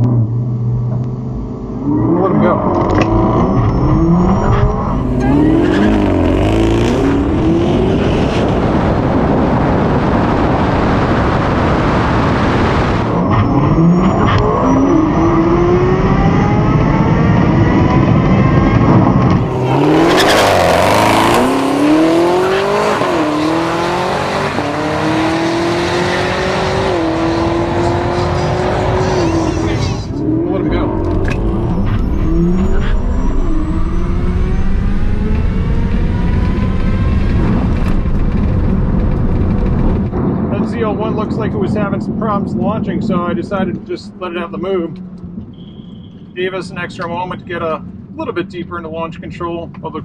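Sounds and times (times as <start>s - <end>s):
car engine at full throttle: 0.0s - 45.6s
tyre and wind noise: 2.8s - 27.8s, 30.9s - 43.9s.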